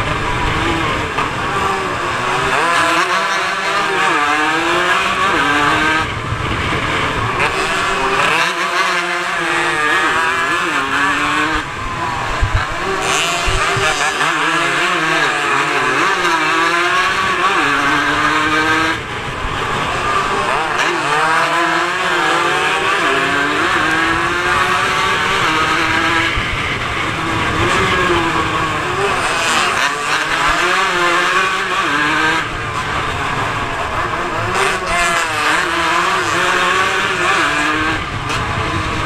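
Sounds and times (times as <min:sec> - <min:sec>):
motorcycle engine at full throttle: 0:00.0 - 0:39.0.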